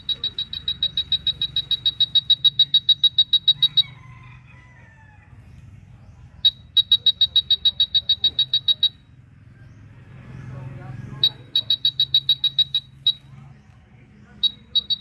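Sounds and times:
wall scanner beeping: 0.0 - 4.0, 6.4 - 9.2, 11.1 - 13.6, 14.2 - 15.0.

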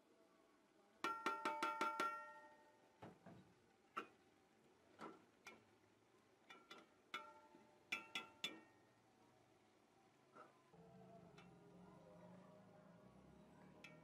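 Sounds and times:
metal ladle knocking on pot: 1.1 - 2.4.

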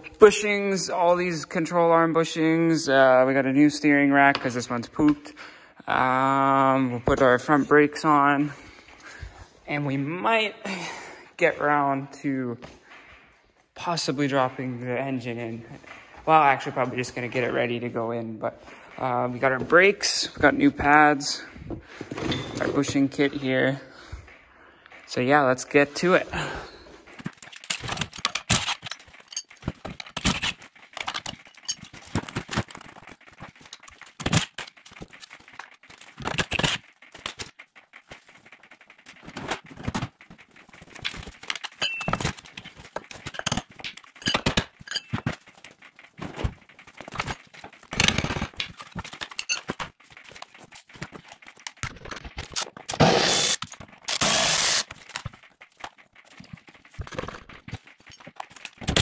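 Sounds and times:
hand tools clanking on metal: 41.2 - 45.4
steady noise: 52.9 - 54.9.

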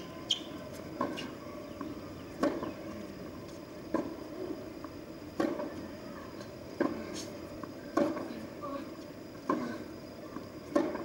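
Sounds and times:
rackets hitting tennis ball: 7.9 - 8.3, 10.7 - 11.0.

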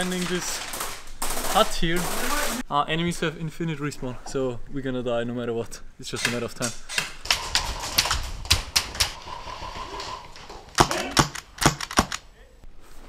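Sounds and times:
airsoft guns clattering: 0.0 - 2.6, 6.2 - 12.3.

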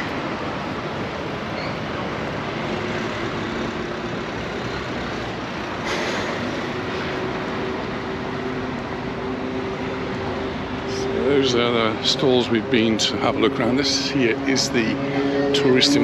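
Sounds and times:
heavy vehicle engine running: 0.0 - 16.0
road traffic: 0.0 - 16.0
short hiss: 5.8 - 6.5.

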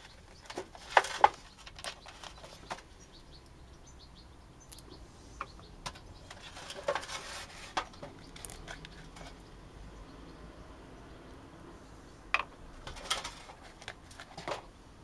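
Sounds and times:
resin pieces clicking and knocking: 5.8 - 9.4.

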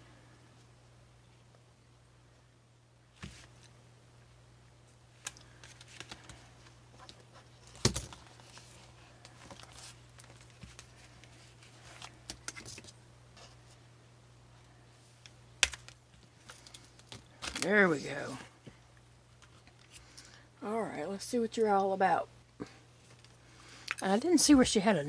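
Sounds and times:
plastic and card crinkling: 5.2 - 13.8, 15.2 - 18.1.

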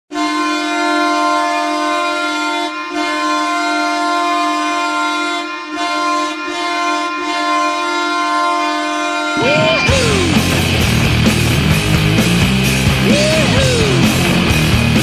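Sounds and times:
arena goal horn chord: 0.1 - 12.0.

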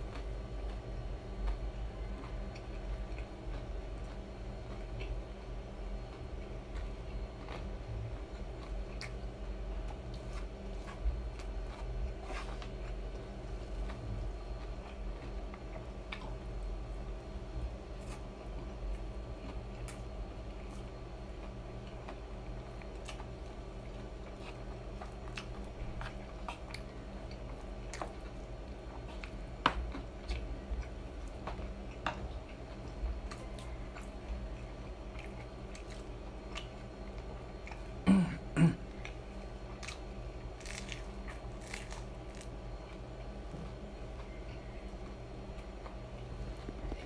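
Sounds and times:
chewing with wet clicks: 0.0 - 17.1, 18.6 - 38.0.

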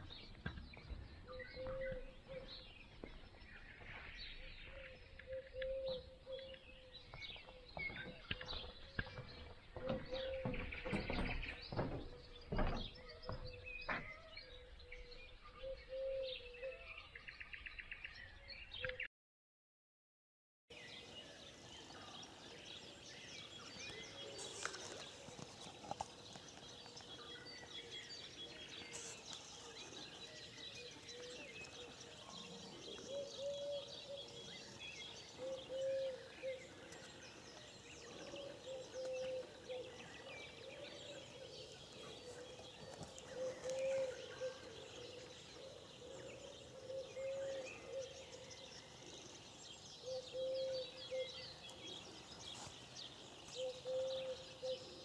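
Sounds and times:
small birds chirping: 0.0 - 19.1, 20.7 - 55.0
low bird call: 4.4 - 9.2, 26.8 - 49.3, 50.0 - 51.8, 53.5 - 55.0.

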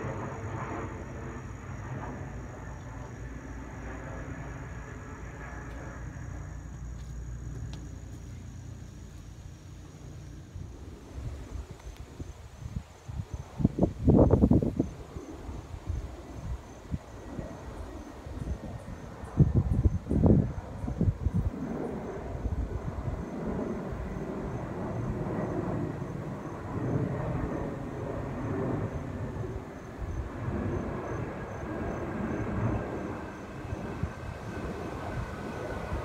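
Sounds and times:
jet airliner rumble overhead: 0.0 - 36.0
wind buffeting microphone: 10.5 - 36.0.

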